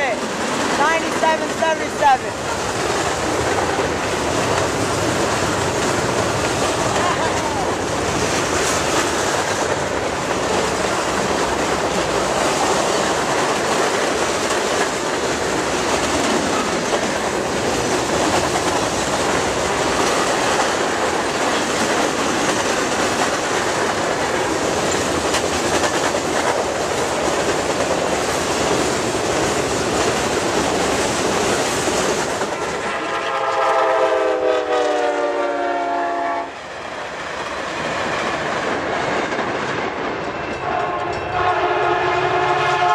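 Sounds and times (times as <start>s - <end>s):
steel wheels rolling on rail: 0.0s - 42.9s
train horn sliding down: 32.9s - 36.6s, 40.6s - 42.9s.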